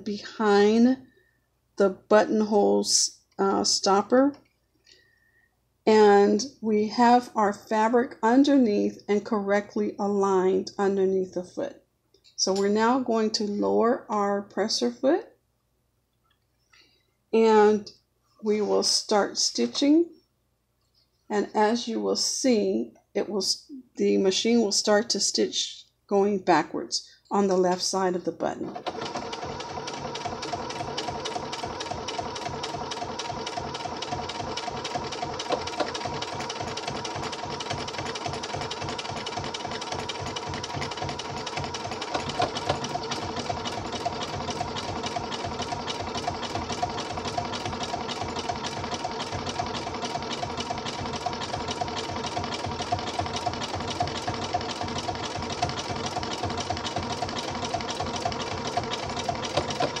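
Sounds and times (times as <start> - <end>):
sewing machine stitching: 28.6 - 60.0.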